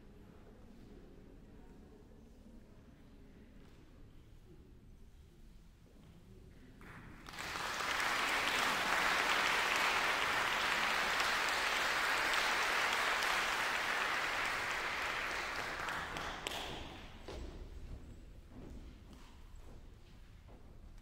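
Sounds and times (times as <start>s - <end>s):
audience applauding: 7.2s - 17.1s.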